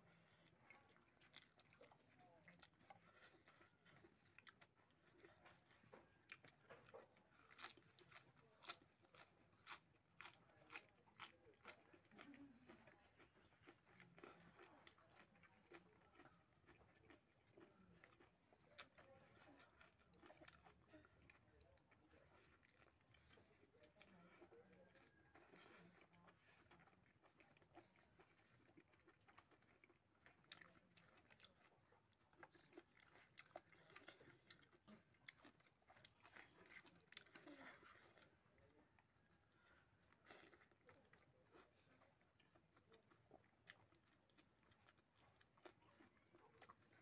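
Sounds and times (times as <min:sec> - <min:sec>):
man chewing food: 0:00.0 - 0:47.0.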